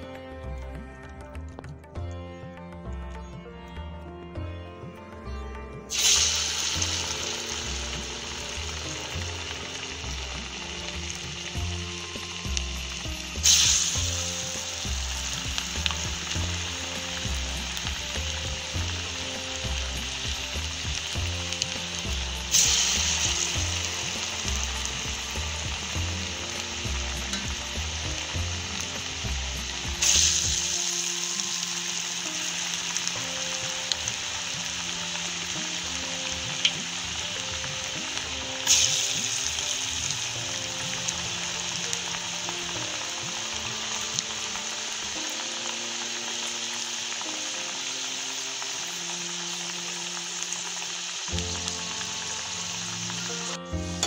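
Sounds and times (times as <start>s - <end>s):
fritters sizzling in hot oil: 5.7s - 54.0s.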